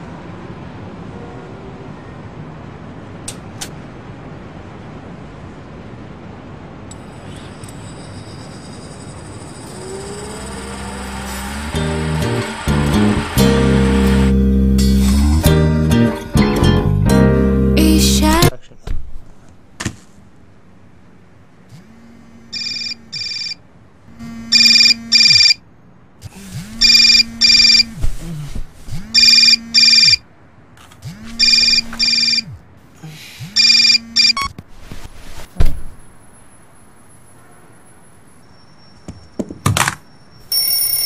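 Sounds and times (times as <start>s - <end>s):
low buzz: 7.0s - 18.5s, 21.7s - 23.5s, 24.1s - 25.6s, 26.2s - 30.2s, 31.0s - 32.7s, 33.4s - 34.5s
music: 11.6s - 18.5s
mobile phone ringing: 22.5s - 23.6s, 24.2s - 25.6s, 26.8s - 28.0s, 29.2s - 30.2s, 31.4s - 32.6s, 33.6s - 34.5s, 40.5s - 41.0s
sharp thump: 35.6s - 36.0s.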